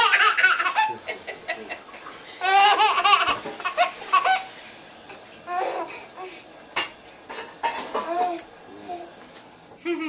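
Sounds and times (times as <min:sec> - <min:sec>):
baby laughing: 0:00.0 - 0:04.5, 0:05.4 - 0:06.1.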